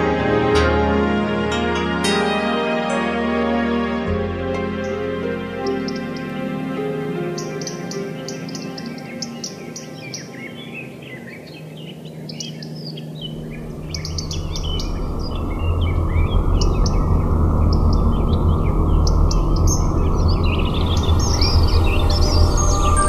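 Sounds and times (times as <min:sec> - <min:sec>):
songbirds chirping: 0:00.0 - 0:23.0
low rumble: 0:13.2 - 0:23.0.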